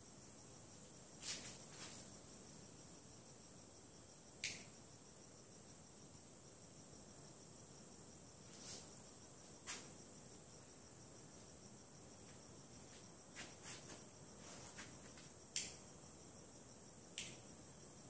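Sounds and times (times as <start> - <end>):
crickets chirring: 0.0 - 18.0.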